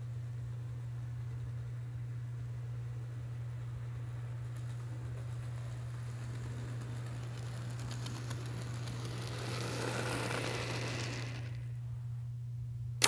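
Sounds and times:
steady low hum: 0:00.0 - 0:13.0
model train motor whirring: 0:04.1 - 0:11.8.

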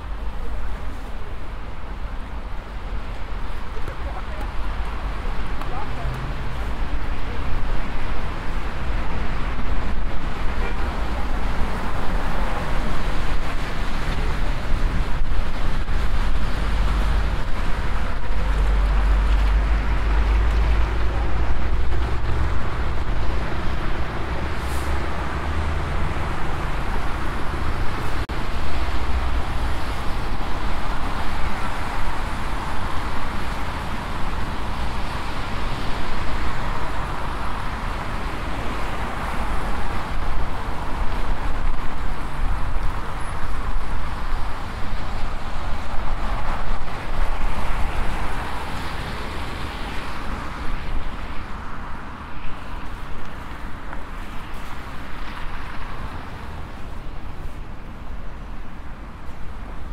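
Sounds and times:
city road traffic: 0:00.0 - 0:59.9
wind rumble on microphone: 0:00.0 - 0:59.9.

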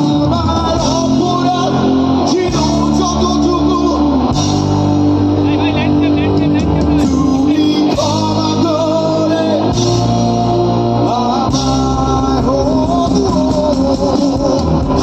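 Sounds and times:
bass guitar: 0:00.0 - 0:15.0
electric guitars: 0:00.0 - 0:15.0
person singing: 0:05.6 - 0:15.0.

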